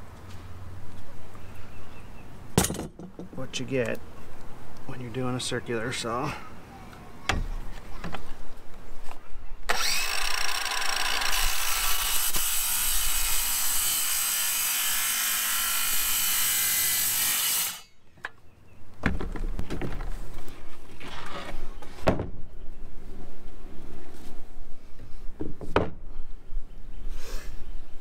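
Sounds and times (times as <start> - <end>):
circular saw cutting: 9.7 - 17.9.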